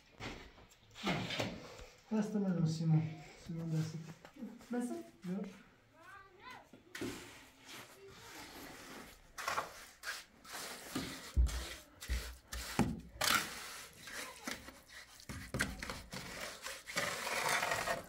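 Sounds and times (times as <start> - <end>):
trowel scraping wet mortar: 8.5 - 18.0.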